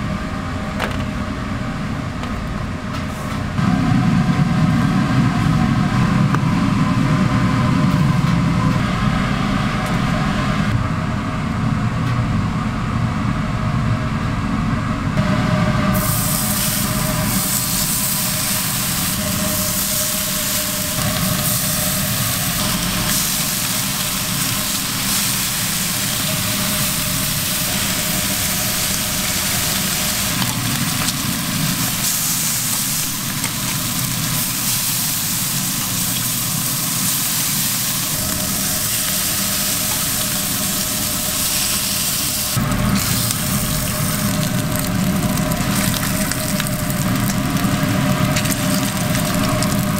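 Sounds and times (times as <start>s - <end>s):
low kitchen hum: 0.0s - 49.9s
bacon sizzling on griddle: 16.0s - 49.9s.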